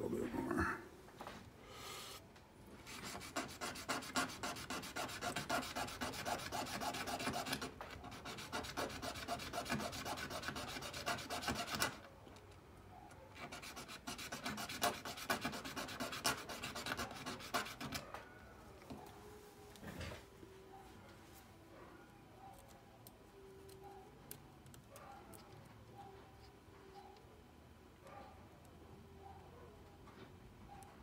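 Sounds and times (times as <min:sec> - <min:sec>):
hand file rasping on brass: 0:02.9 - 0:12.0, 0:13.4 - 0:18.0.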